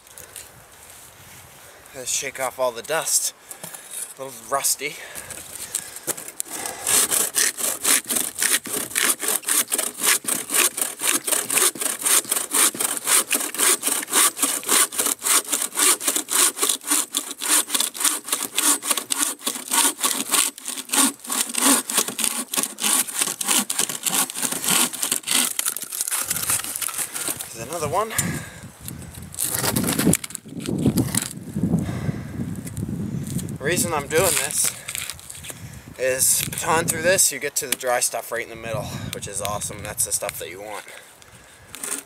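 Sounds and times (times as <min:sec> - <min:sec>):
bow saw cutting a log: 0:06.1 - 0:28.5, 0:29.3 - 0:31.4, 0:33.6 - 0:35.2, 0:41.6 - 0:42.0.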